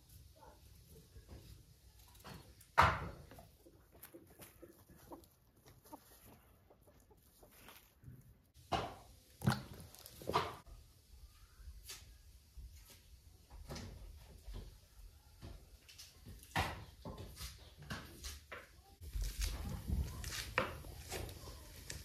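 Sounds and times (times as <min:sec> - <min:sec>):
chickens clucking: 0:02.2 - 0:08.4.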